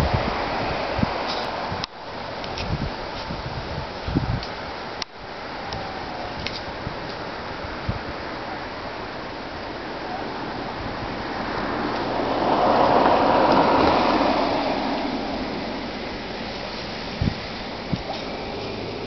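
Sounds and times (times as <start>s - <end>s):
steady outdoor hiss: 0.0s - 19.0s
vehicle passing: 8.9s - 19.0s.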